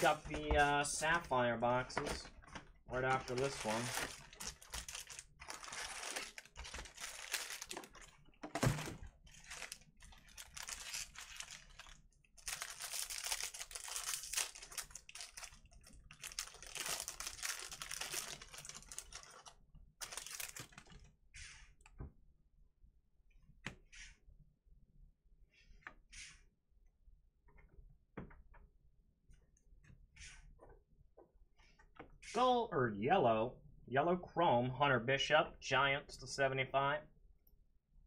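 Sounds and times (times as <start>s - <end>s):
cards being handled: 2.0s - 7.9s
foil wrapper tearing and crinkling: 3.2s - 8.2s, 9.3s - 20.9s.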